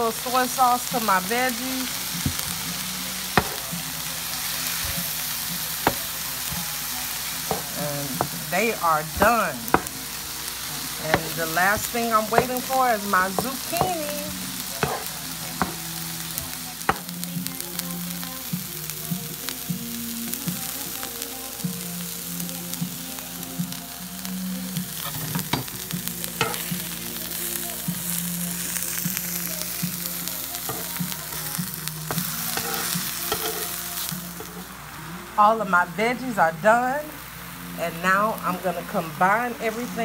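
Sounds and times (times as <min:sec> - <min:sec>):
vegetables sizzling on a griddle: 0:00.0 - 0:40.0.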